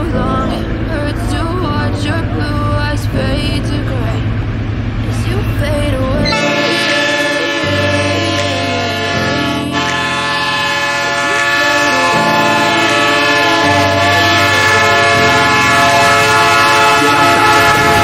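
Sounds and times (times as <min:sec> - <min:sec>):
moving train: 0:00.0 - 0:18.0
locomotive air horn: 0:06.2 - 0:18.0.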